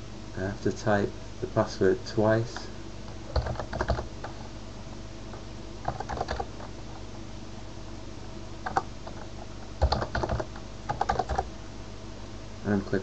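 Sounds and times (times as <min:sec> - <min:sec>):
faint steady hum: 0:00.0 - 0:13.0
keyboard typing: 0:03.2 - 0:04.4, 0:05.8 - 0:06.8, 0:08.6 - 0:11.5.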